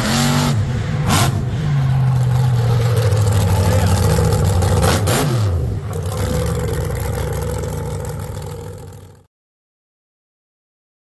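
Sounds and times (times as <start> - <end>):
monster truck engine running: 0.0 - 9.3.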